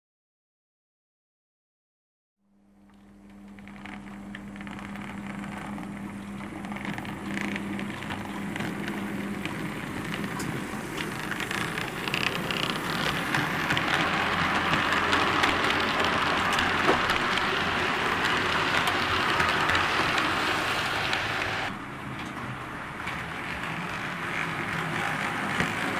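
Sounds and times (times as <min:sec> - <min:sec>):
model train running on track: 0:06.4 - 0:25.9
clicks of train wheels: 0:06.7 - 0:25.9.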